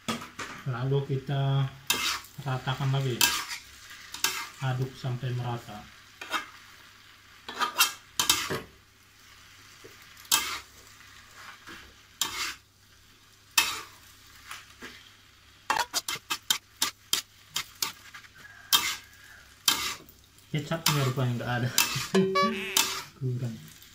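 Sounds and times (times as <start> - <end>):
faint sizzle: 0.0 - 23.9
metal spoon scraping wok: 1.9 - 2.3, 3.2 - 4.6, 6.2 - 6.6, 7.5 - 8.6, 10.3 - 10.7, 11.4 - 12.6, 13.6 - 14.0, 15.7 - 20.0, 20.8 - 23.2.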